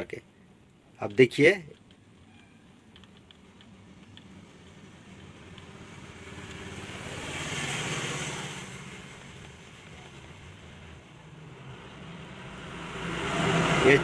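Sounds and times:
vehicle passing by: 5.3s - 14.0s.

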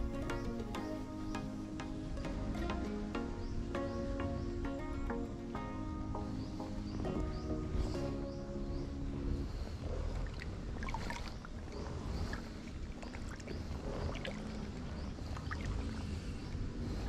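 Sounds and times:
water sloshing around legs: 9.8s - 16.2s.

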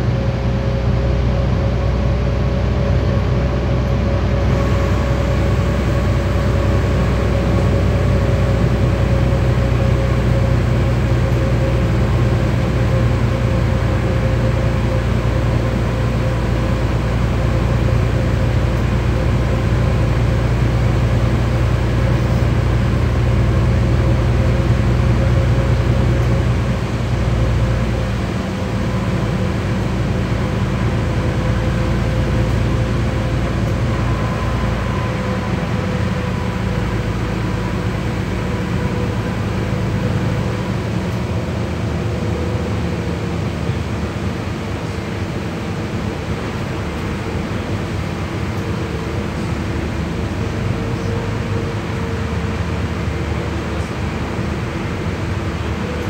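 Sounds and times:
bus drivetrain hum with whine: 0.0s - 56.0s.

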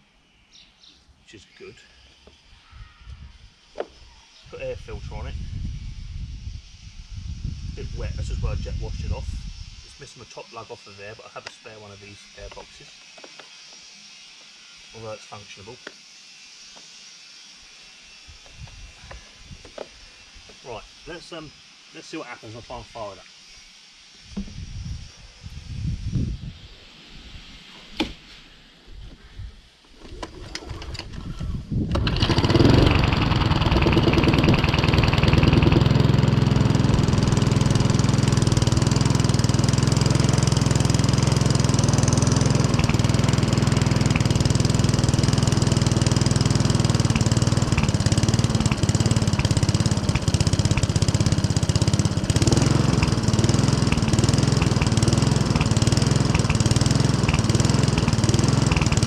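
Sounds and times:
lawnmower engine pull-started: 29.9s - 59.0s.

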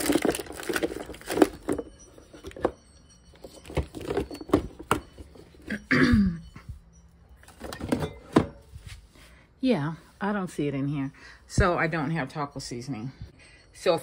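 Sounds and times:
bottles and jars clinking: 0.0s - 8.9s.

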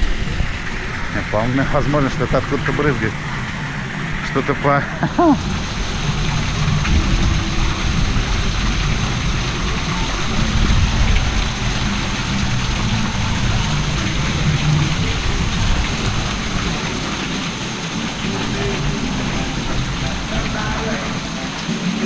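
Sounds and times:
low rumble: 0.0s - 21.7s
water spraying and splashing: 0.0s - 22.0s.

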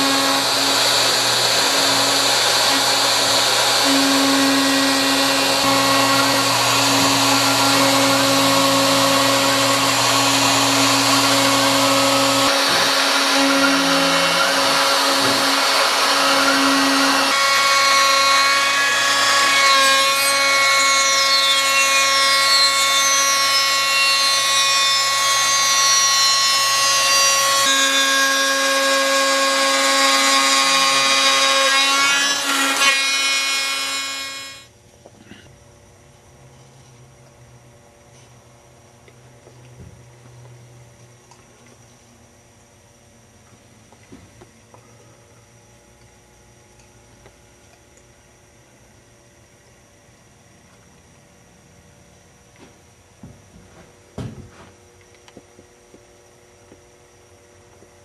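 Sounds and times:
hiss of wood being cut: 0.0s - 24.4s
router spindle whining: 0.0s - 34.7s.

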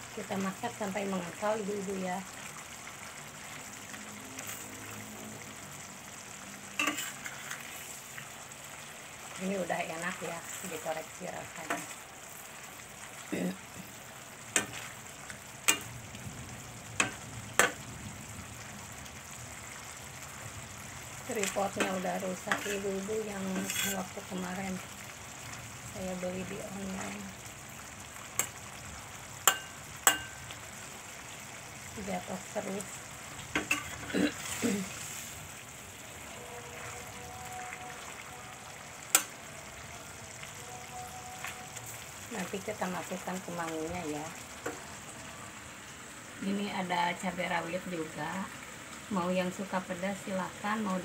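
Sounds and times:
sauce sizzling: 0.0s - 51.0s
metal spatula scraping pan: 6.8s - 8.0s, 21.8s - 24.2s.

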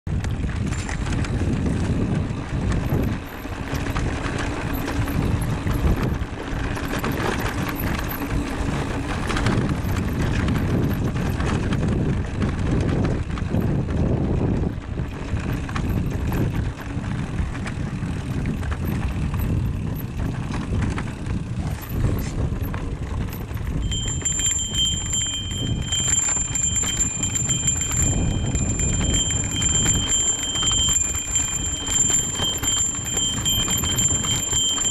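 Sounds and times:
bike rattling over rocks: 0.1s - 34.9s.

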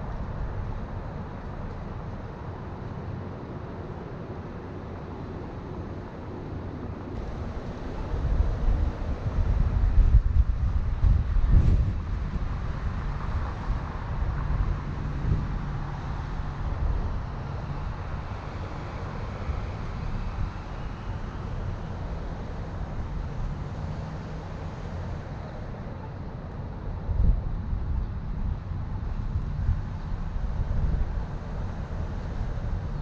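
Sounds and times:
car road and engine rumble: 0.0s - 33.0s
wind on microphone: 7.2s - 23.8s, 26.4s - 33.0s.

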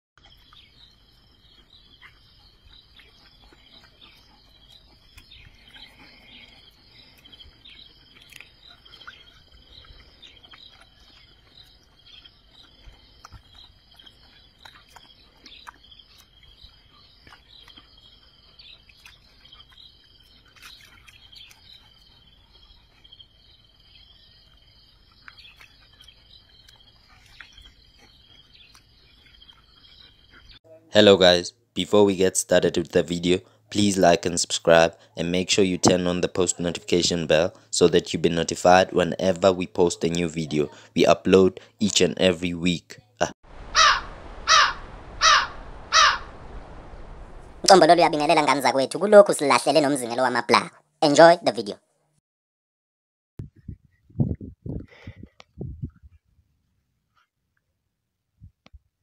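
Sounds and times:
insects chirping: 0.2s - 42.8s.

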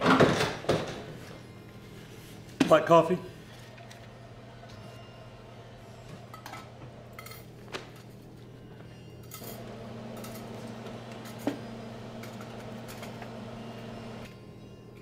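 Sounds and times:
steady low hum: 9.4s - 14.4s.

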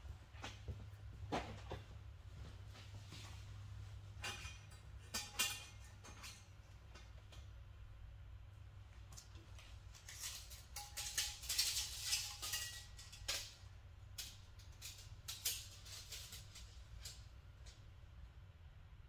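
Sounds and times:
low steady hum: 0.0s - 19.0s
metal parts and tools clinking: 4.1s - 7.6s, 9.1s - 17.8s.

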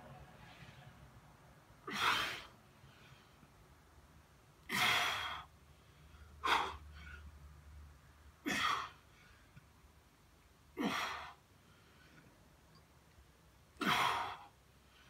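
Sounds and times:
man breathing hard: 4.7s - 7.3s, 13.8s - 15.0s.

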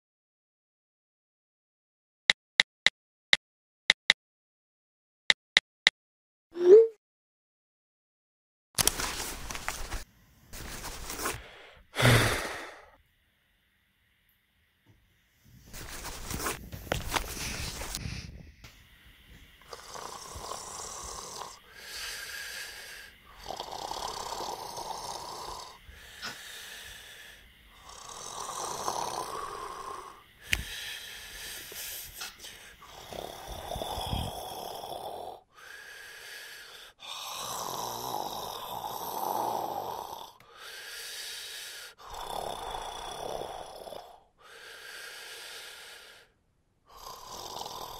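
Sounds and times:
person snoring: 10.6s - 13.0s, 19.6s - 47.9s.

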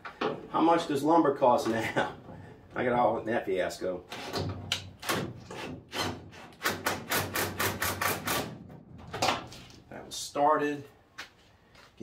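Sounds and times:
impact driver hammering: 5.0s - 8.6s.

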